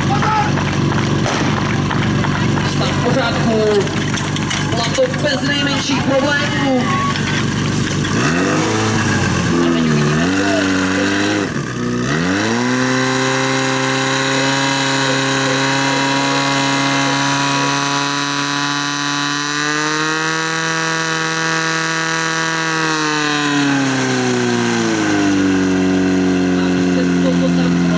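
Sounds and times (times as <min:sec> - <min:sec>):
pump engine running at high revs: 0:00.0 - 0:27.9.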